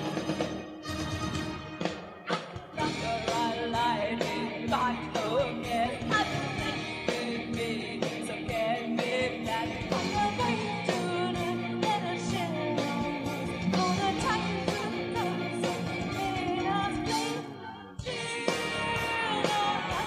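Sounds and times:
electric guitars: 0.0 - 20.0
woman singing: 2.8 - 20.0.

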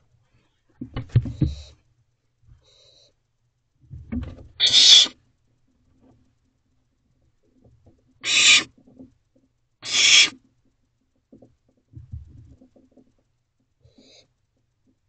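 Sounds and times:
owlets hissing screeches: 4.6 - 5.2, 8.2 - 8.7, 9.8 - 10.4.

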